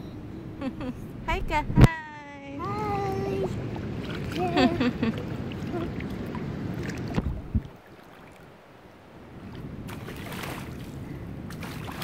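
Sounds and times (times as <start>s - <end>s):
wind rumbling on microphone: 0.0s - 12.0s
shallow water sloshing: 2.6s - 12.0s.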